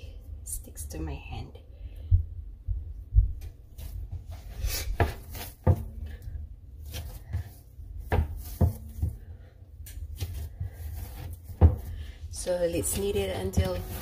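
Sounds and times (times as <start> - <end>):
hands squishing dough: 3.4 - 14.0
dough thumping on wooden board: 5.0 - 6.2, 6.8 - 9.4, 10.2 - 12.1, 12.7 - 14.0.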